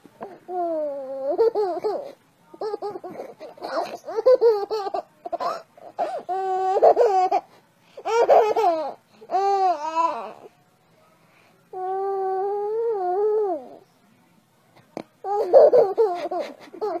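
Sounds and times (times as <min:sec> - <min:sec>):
baby giggling: 0:00.5 - 0:05.6, 0:06.3 - 0:10.3, 0:15.3 - 0:17.0.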